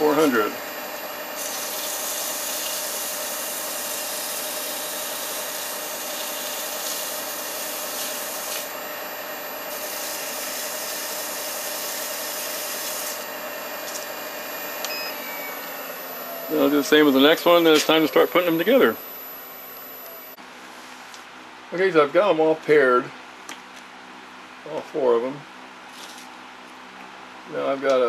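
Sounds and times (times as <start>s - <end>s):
lathe humming: 0.0s - 20.4s
sandpaper scraping spinning wood: 1.4s - 8.8s, 9.6s - 19.0s.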